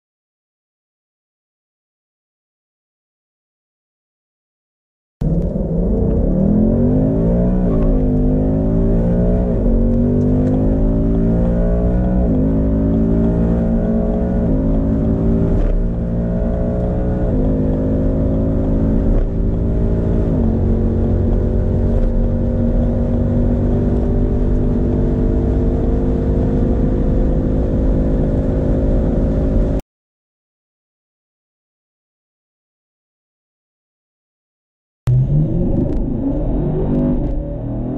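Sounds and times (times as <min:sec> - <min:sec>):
car engine accelerating through gears: 0:05.2 - 0:29.8, 0:35.1 - 0:37.9.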